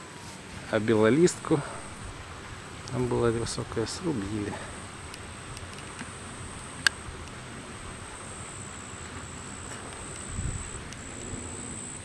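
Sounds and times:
faint outdoor hiss: 0.0s - 12.0s
insects buzzing: 0.6s - 12.0s.

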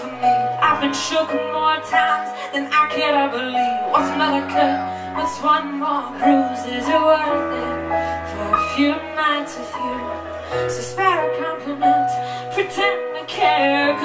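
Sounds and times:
woman singing: 0.0s - 14.0s.

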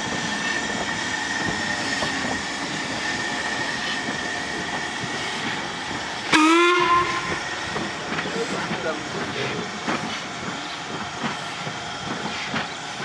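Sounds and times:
steam locomotive hissing: 0.0s - 13.0s
steam whistle toot: 6.3s - 7.4s.

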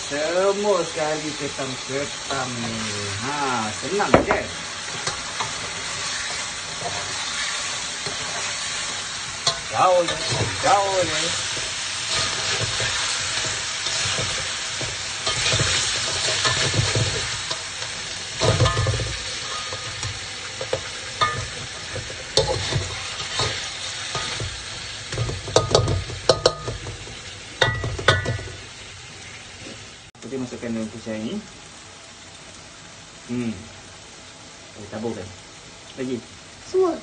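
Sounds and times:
food sizzling in a wok: 0.0s - 37.0s
spatula scraping a wok: 4.6s - 28.6s.

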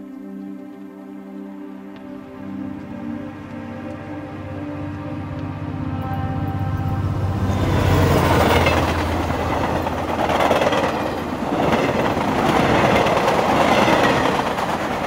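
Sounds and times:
passenger train passing: 3.9s - 15.0s.

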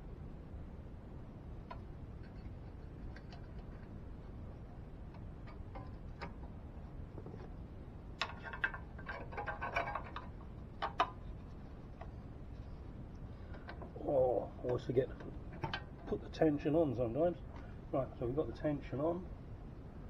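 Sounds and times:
light metallic clicks and rattles: 1.6s - 4.0s, 5.1s - 7.6s, 8.2s - 14.0s, 14.6s - 16.4s.

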